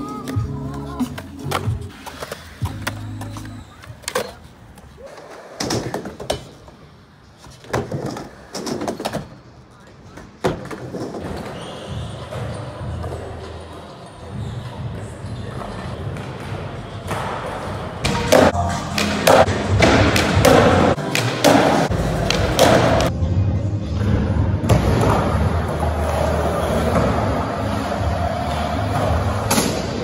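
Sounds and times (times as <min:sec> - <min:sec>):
background music: 0:00.0 - 0:03.6, 0:17.9 - 0:30.0.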